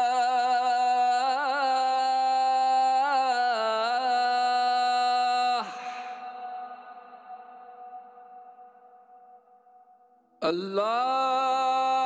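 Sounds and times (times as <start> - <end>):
man singing call to prayer: 0.0 - 8.0, 10.4 - 12.0.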